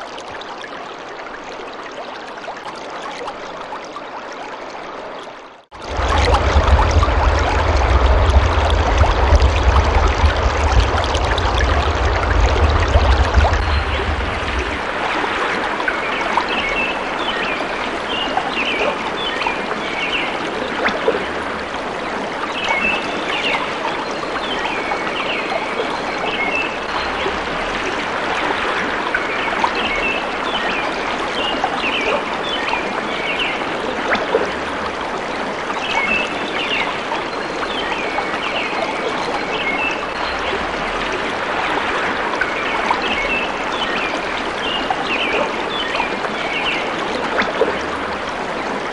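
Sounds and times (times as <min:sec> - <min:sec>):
flowing stream: 0:00.0 - 0:48.9.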